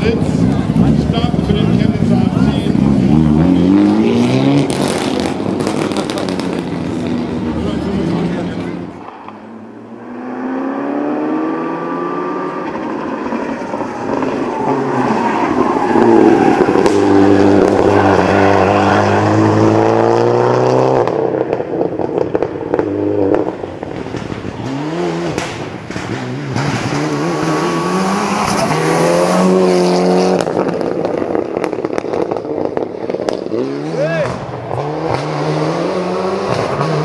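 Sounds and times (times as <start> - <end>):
rally car engine revving: 0.0 - 37.0.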